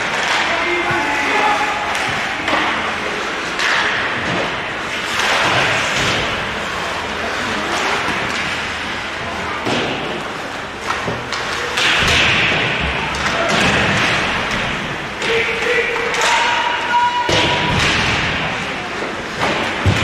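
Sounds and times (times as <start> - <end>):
skates scraping ice: 0.0 - 12.2
puck and sticks slamming boards: 0.0 - 20.0.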